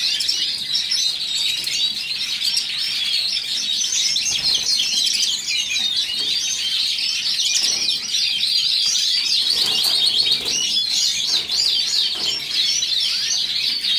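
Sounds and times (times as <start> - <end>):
canaries singing and chirping: 0.0 - 13.9.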